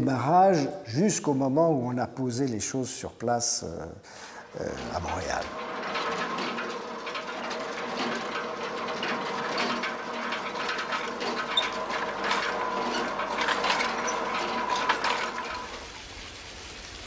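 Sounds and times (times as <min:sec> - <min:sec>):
machinery clattering and rattling: 0:04.5 - 0:17.0
fountain water splashing: 0:15.5 - 0:17.0.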